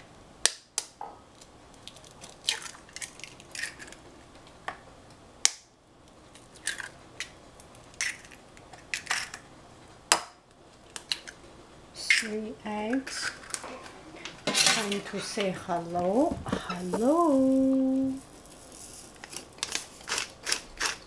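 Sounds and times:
eggs cracked against a bowl: 1.8 - 4.0, 6.4 - 9.4
eggshells being handled: 16.5 - 21.0.

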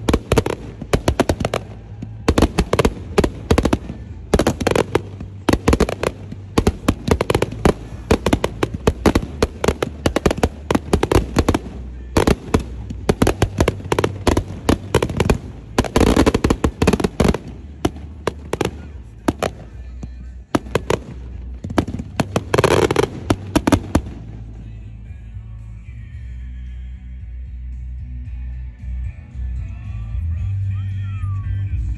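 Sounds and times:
fireworks popping and banging: 0.0 - 24.6.

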